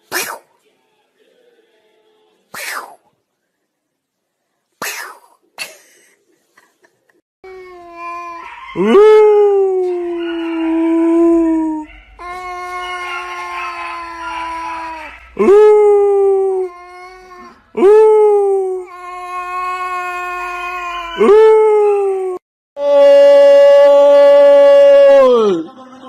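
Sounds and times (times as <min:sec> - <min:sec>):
cat yowling: 0:07.9 - 0:15.5, 0:18.8 - 0:22.0.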